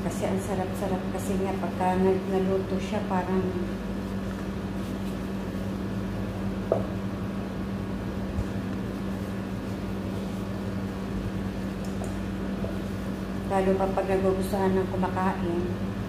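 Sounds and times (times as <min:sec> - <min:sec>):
low machine hum: 0:00.0 - 0:16.0
soft knock: 0:06.7 - 0:06.9.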